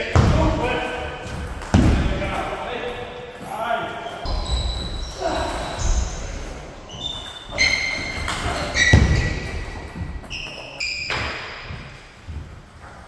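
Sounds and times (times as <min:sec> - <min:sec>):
shoes squeaking on floor: 0:03.2 - 0:13.0.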